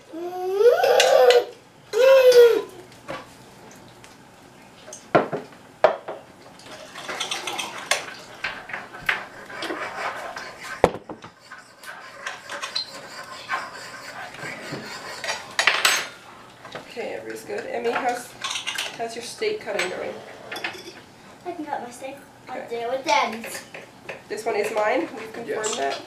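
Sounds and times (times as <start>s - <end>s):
dishes knocking on wooden table: 5.1s - 6.2s, 10.8s - 11.4s
cutlery clinking on plates: 6.7s - 9.2s, 14.6s - 16.2s, 18.0s - 19.0s, 19.8s - 21.0s.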